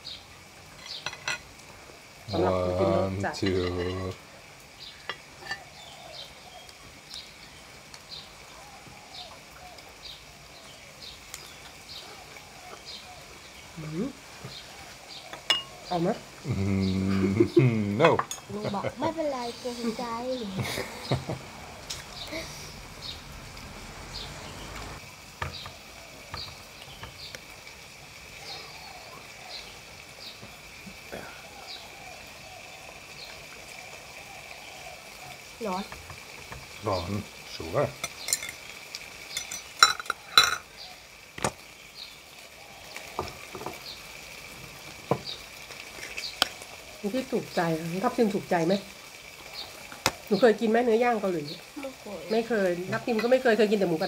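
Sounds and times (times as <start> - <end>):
bird chirping: 0.0 - 1.3, 18.4 - 23.3, 24.0 - 27.4
small bird chirping: 0.0 - 1.4, 4.7 - 17.6, 18.7 - 23.3, 46.1 - 46.8
utensils clicking on dishes: 39.3 - 40.7.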